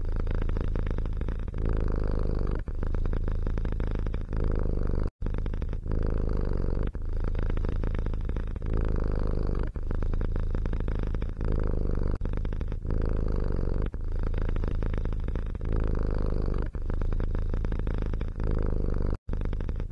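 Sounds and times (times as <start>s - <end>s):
cat purring: 0.0s - 19.9s.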